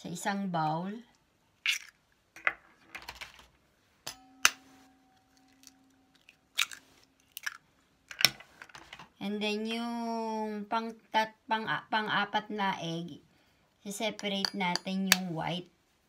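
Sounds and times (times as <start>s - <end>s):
eggs cracking against bowl: 1.6s - 2.1s, 5.2s - 8.4s
metal bowl ringing: 4.0s - 6.6s.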